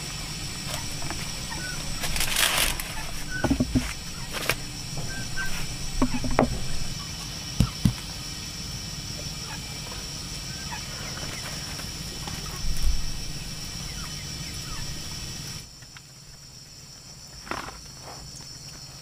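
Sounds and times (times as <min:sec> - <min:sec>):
fowl chirping: 0:00.1 - 0:07.8, 0:09.3 - 0:09.8, 0:10.5 - 0:11.6
sharp knocks: 0:03.4 - 0:06.9, 0:07.6 - 0:08.1.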